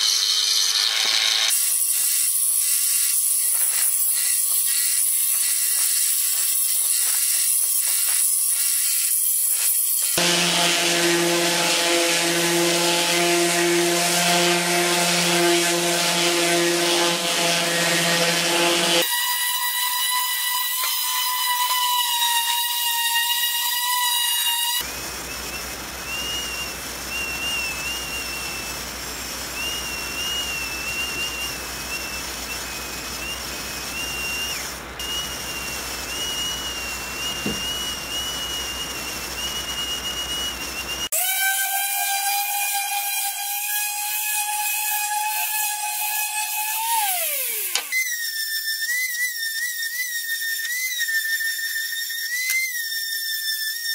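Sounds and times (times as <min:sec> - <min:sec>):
electric sander whining: 0:10.0 - 0:25.5, 0:34.0 - 0:47.9.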